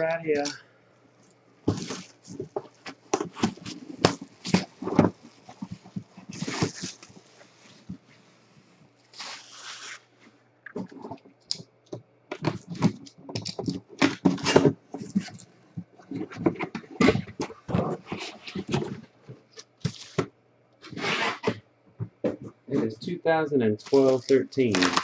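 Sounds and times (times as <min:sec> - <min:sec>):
plastic packaging crinkling: 0:01.2 - 0:08.0, 0:09.1 - 0:10.1, 0:23.8 - 0:25.0
packaging tearing: 0:09.1 - 0:10.1, 0:23.8 - 0:25.0.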